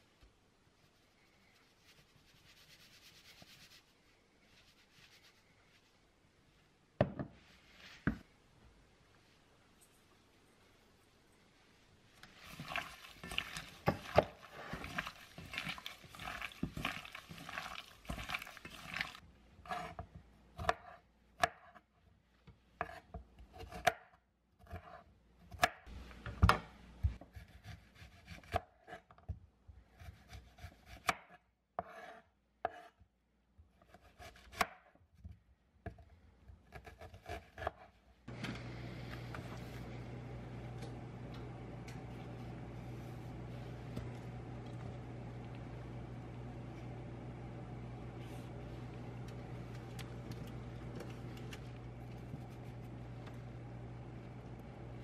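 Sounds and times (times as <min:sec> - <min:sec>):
hands rubbing chicken in metal bowl: 0:12.3 - 0:19.2
knife cutting onion on board: 0:19.6 - 0:21.9, 0:22.8 - 0:29.3, 0:29.9 - 0:33.0, 0:33.7 - 0:38.0.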